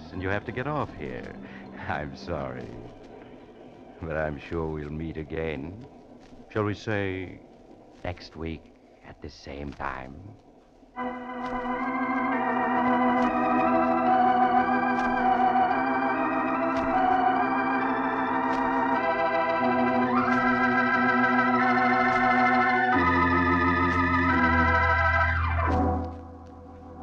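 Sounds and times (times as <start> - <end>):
organ playing wavering chords: 0.0 - 5.9, 11.0 - 27.0
faint ticks: 0.8 - 11.8.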